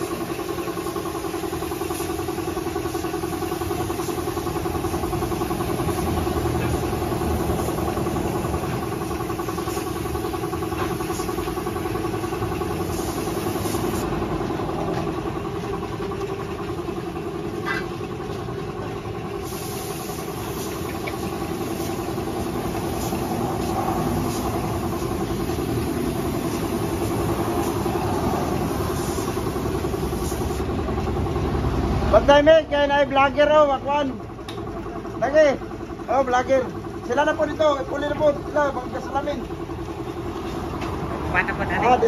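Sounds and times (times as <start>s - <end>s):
paint spray gun hissing: 0.0s - 31.2s
air compressor humming: 0.0s - 42.0s.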